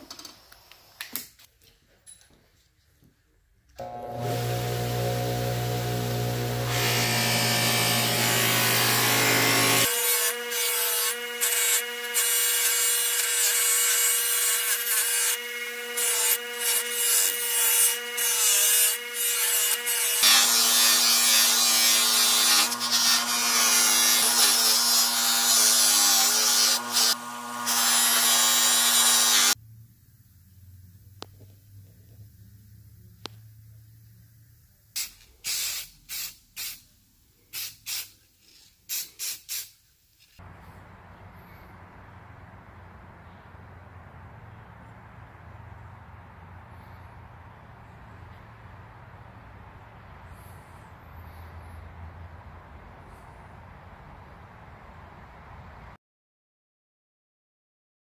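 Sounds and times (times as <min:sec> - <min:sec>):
bench grinder grinding metal: 0:03.8 - 0:29.6
aerosol spray can hisses: 0:35.0 - 0:36.8, 0:37.5 - 0:38.2, 0:38.9 - 0:39.8.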